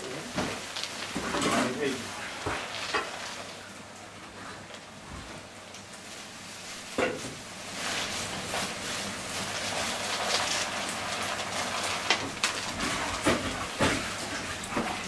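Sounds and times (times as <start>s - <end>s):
dried beans pouring into tub: 0.1s - 3.6s, 7.7s - 14.6s
plastic bag crinkling: 0.1s - 3.7s, 7.6s - 13.2s.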